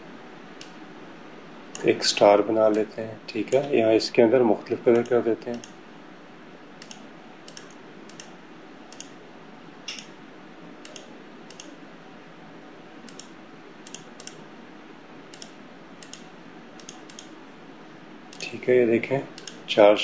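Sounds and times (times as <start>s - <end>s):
steady low hiss: 0.0s - 20.0s
computer mouse clicking: 1.7s - 1.9s, 4.9s - 5.8s, 6.8s - 8.3s, 8.9s - 9.2s, 9.9s - 10.1s, 10.8s - 11.8s, 13.1s - 14.4s, 15.3s - 17.4s, 18.3s - 18.5s, 19.3s - 19.7s.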